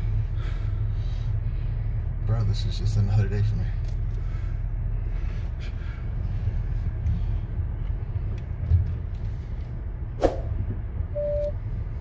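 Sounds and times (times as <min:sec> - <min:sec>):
engine and tyres rumbling: 0:00.0 - 0:12.0.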